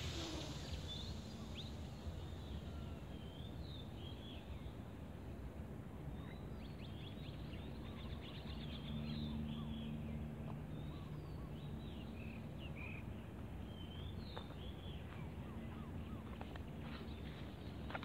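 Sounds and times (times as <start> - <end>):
low hum: 0.0 - 4.8.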